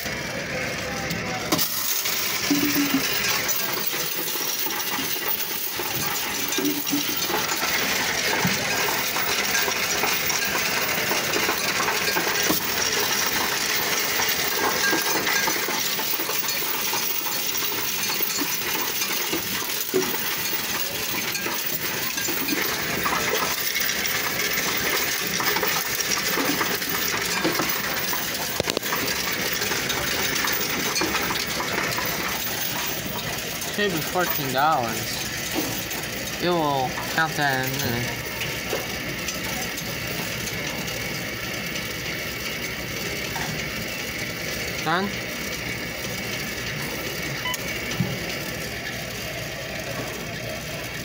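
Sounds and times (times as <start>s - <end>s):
coins clattering and jingling: 1.5s - 40.1s.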